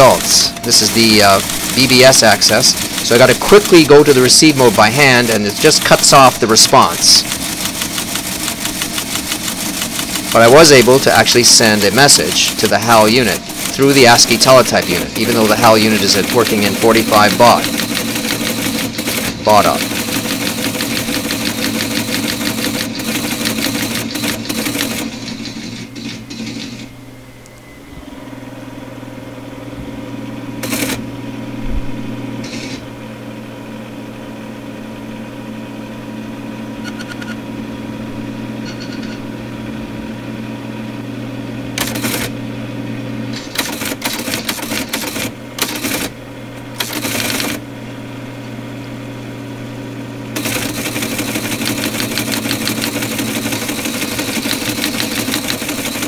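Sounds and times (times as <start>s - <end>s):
teleprinter clicking while printing: 0.0s - 26.9s, 30.6s - 31.0s, 32.4s - 32.8s, 41.8s - 42.4s, 43.4s - 47.6s, 50.4s - 56.0s
teleprinter motor running: 0.0s - 26.9s, 30.6s - 31.1s, 32.4s - 32.8s, 41.7s - 42.5s, 43.2s - 47.7s, 50.3s - 56.0s.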